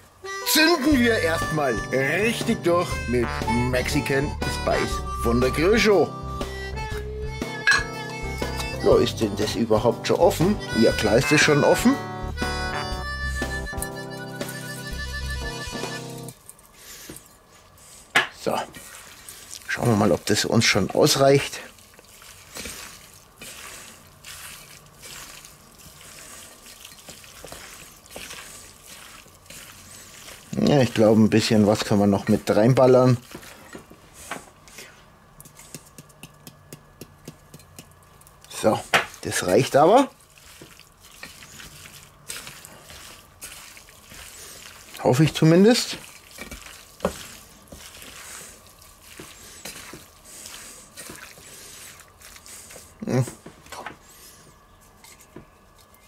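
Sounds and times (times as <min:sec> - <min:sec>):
wet squelching and slapping: 0:18.8 - 0:33.7, 0:35.5 - 0:53.3.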